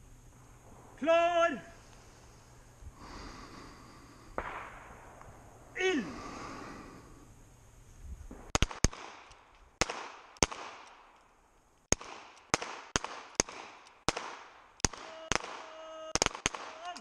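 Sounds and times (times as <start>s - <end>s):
handgun shots echoing: 8.4s - 11.1s.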